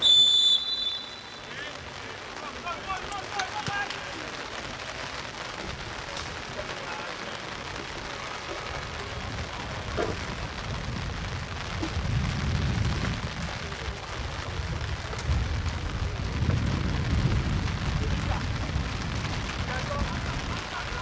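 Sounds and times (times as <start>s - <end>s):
wind buffeting microphone: 7.8s - 21.0s.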